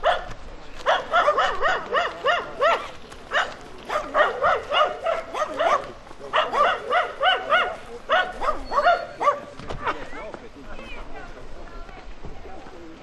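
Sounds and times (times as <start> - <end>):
dog barking: 0.0 - 9.5.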